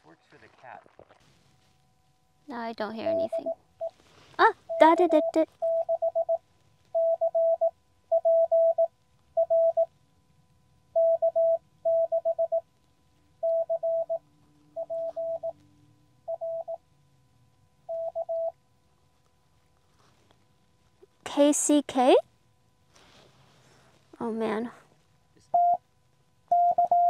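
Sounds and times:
morse code tone: 0:03.0 - 0:06.4, 0:07.0 - 0:09.9, 0:11.0 - 0:12.6, 0:13.4 - 0:14.2, 0:14.8 - 0:15.6, 0:16.3 - 0:16.8, 0:17.9 - 0:18.6, 0:25.6 - 0:25.8, 0:26.5 - 0:27.0.

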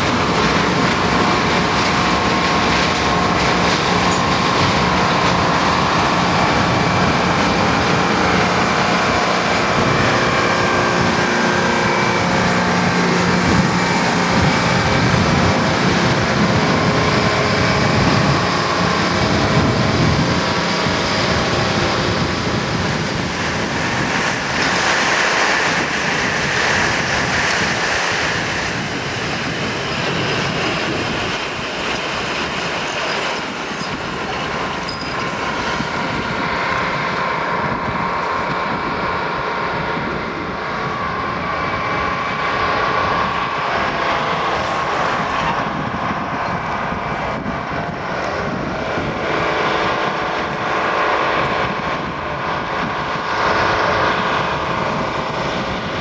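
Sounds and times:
train clattering and grinding: 0:00.0 - 0:38.9
high-pitched squealing: 0:23.4 - 0:36.8.

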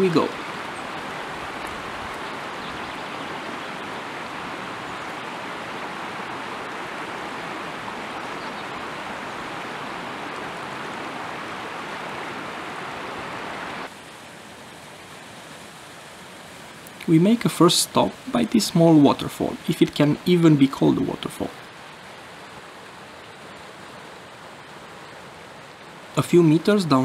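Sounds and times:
river rushing over stones: 0:00.0 - 0:27.0
small waterfall: 0:00.0 - 0:27.0.

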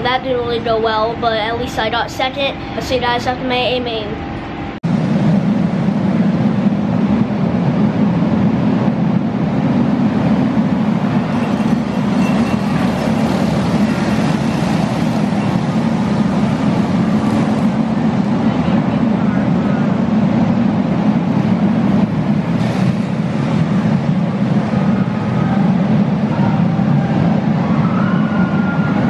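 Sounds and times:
racing kart engines droning: 0:06.4 - 0:29.0.

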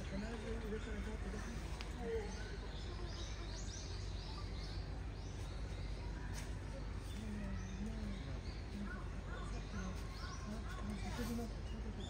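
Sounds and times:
small birds chirping: 0:00.0 - 0:12.0
faint distant voice: 0:05.7 - 0:12.0.

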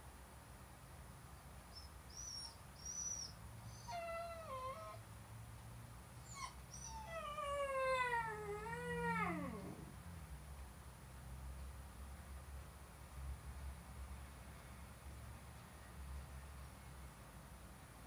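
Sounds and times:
dog squeaking: 0:02.1 - 0:05.0
dog howling: 0:06.4 - 0:09.9.

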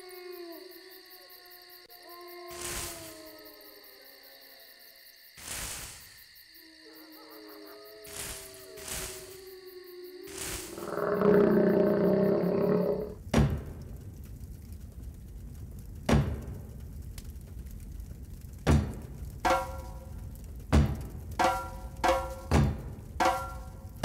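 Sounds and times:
deep drum beats: 0:13.2 - 0:14.2, 0:15.5 - 0:17.2, 0:18.6 - 0:24.0.

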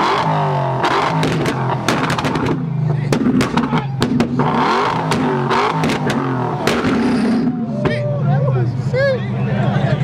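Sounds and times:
car exhaust blaring at high revs: 0:00.0 - 0:07.8
exhaust pops and crackles: 0:00.8 - 0:07.5.

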